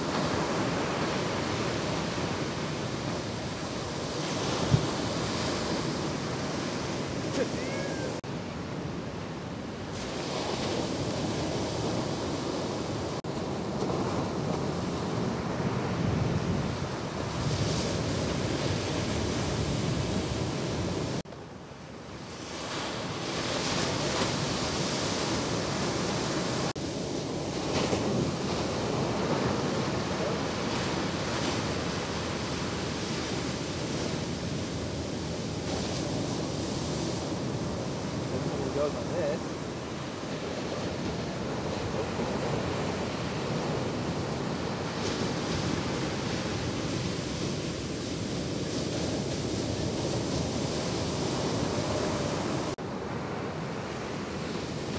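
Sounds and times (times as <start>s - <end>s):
wind noise on microphone: 0.0s - 21.2s
ocean waves breaking: 0.0s - 54.9s.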